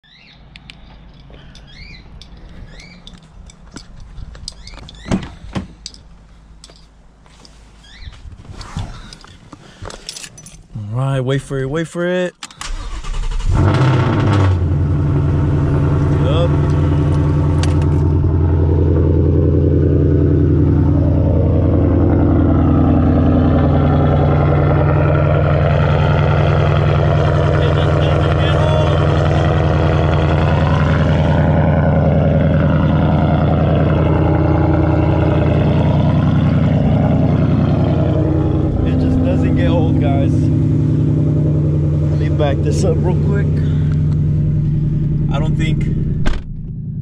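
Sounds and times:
car engine idling loudly: 13.3s - 47.0s.

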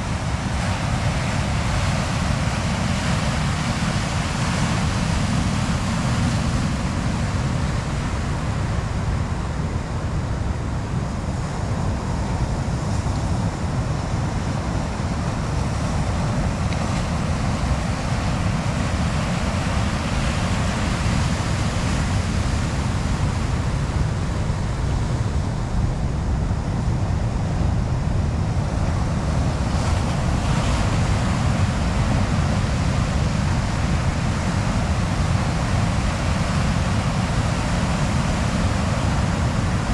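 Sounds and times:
ocean surf breaking on boulders: 0.0s - 39.9s
wind rumbling on microphone: 0.0s - 39.9s.

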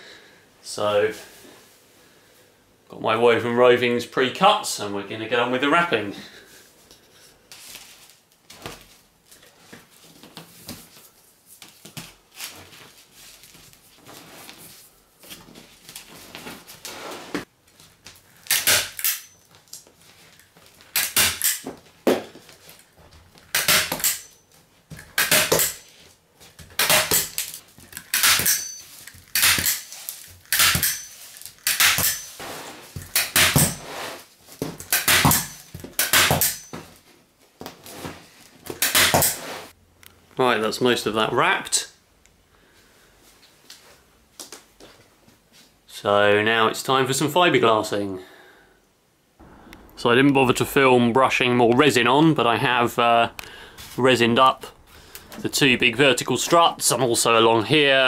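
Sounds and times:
short sharp scraping strokes: 39.0s - 39.8s.

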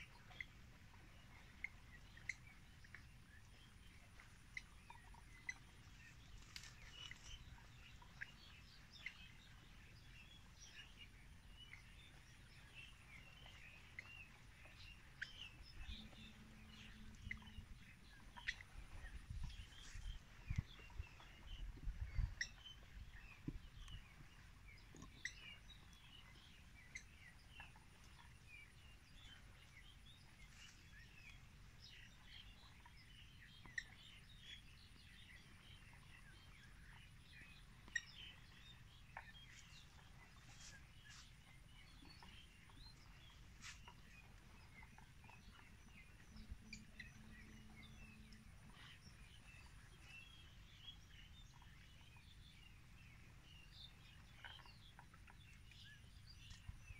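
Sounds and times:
light ticks: 6.4s - 7.4s.

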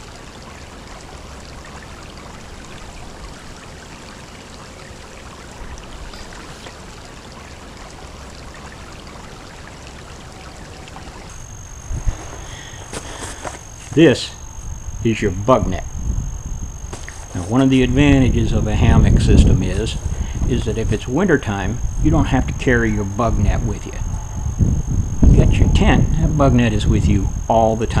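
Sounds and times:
creek water running over rocks: 0.0s - 24.0s
high-pitched tone: 10.4s - 28.0s.

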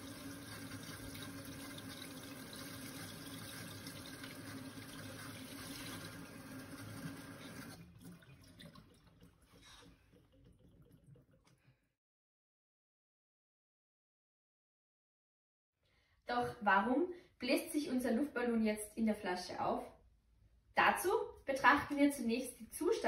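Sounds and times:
tap water running into sink: 0.0s - 11.7s.

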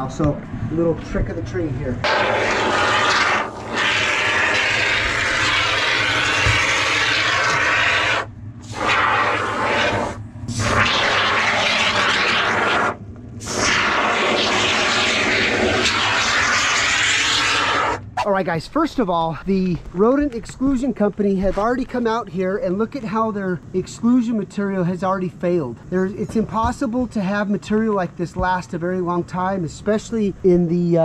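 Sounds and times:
foam gun hissing: 2.0s - 18.0s.

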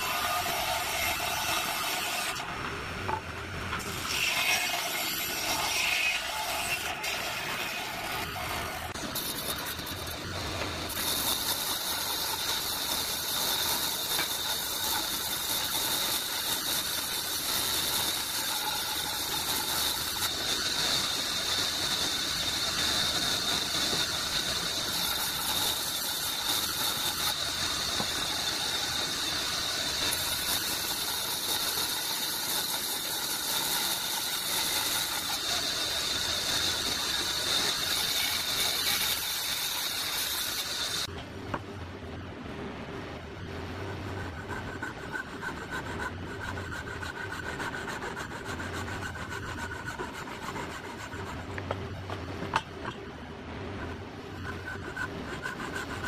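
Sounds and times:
bandsaw cutting wood: 3.8s - 41.1s.

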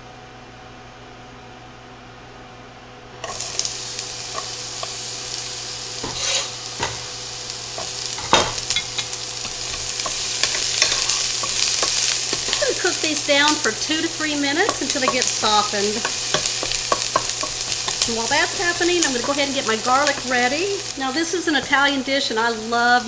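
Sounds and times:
onion sizzling in hot oil: 3.2s - 23.0s
wooden spatula scraping pan: 6.0s - 7.1s, 7.8s - 13.1s, 14.5s - 20.3s.

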